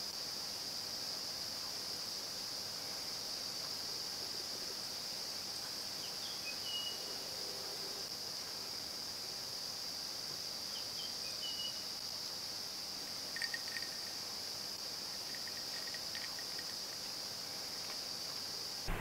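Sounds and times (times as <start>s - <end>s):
insects shrilling: 10.6s - 19.0s.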